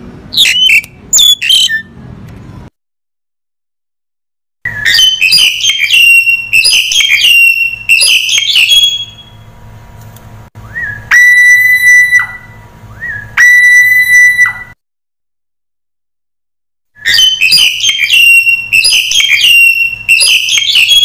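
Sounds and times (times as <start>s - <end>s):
bird long whistles: 0.4s - 1.8s, 4.7s - 9.2s, 10.7s - 14.8s, 17.0s - 21.0s
bird harsh chattering: 0.4s - 1.9s.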